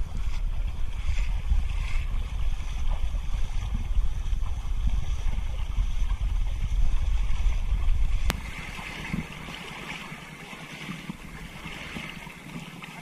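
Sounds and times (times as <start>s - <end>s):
low microphone rumble: 0.0s - 9.9s
water sloshing from wading: 0.0s - 13.0s.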